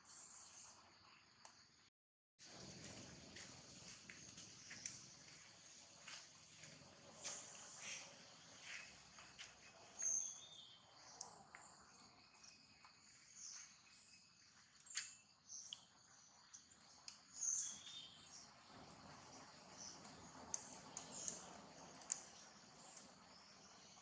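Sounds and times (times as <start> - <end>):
faint clicks: 4.3 - 5.1, 19.8 - 23.1.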